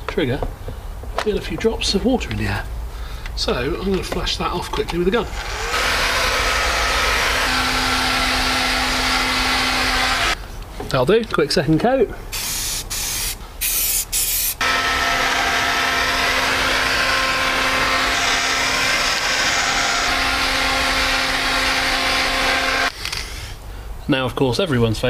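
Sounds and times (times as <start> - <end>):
heat gun fan humming: 5.3 - 10.4, 12.4 - 23.0
aerosol can spraying: 12.4 - 14.6.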